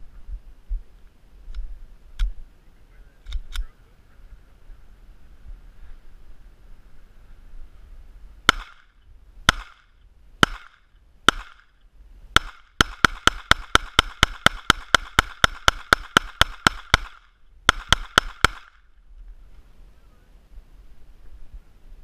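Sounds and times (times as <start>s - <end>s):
pistol shots: 8.5s - 8.9s, 9.5s - 11.7s, 12.4s - 18.8s.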